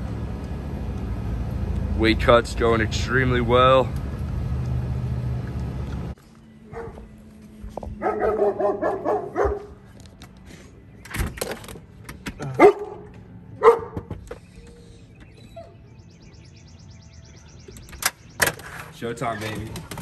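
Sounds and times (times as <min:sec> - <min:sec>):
dog barking: 0:06.7 - 0:07.0, 0:08.0 - 0:09.8, 0:12.6 - 0:14.0.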